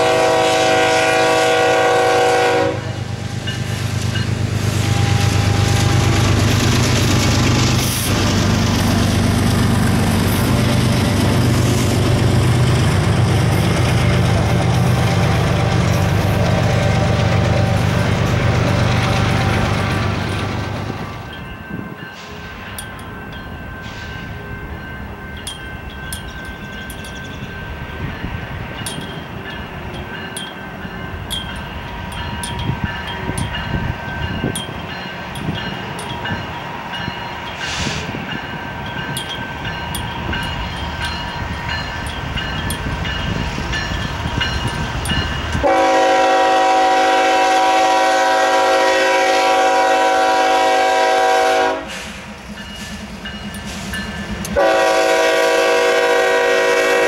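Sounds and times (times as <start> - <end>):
locomotive horn blast: 0.0 - 3.4, 45.6 - 52.2, 54.5 - 57.0
diesel locomotive rumble: 0.0 - 57.0.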